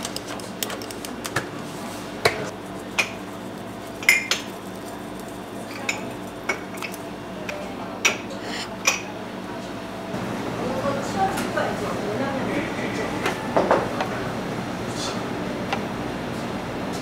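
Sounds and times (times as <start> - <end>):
steady background hum: 0.0 - 17.0
crockery and utensils clinking: 4.0 - 4.5.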